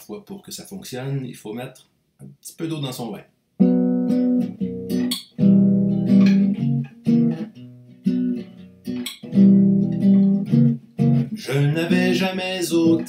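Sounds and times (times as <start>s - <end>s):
fingerpicked classical guitar chords: 3.6s - 13.0s.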